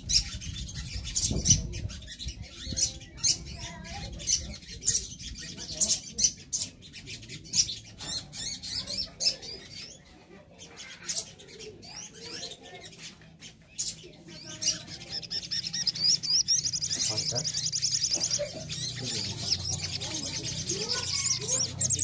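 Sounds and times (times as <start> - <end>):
sunbirds chipping and twittering: 0.0 - 22.0
bird fast trill: 13.8 - 22.0.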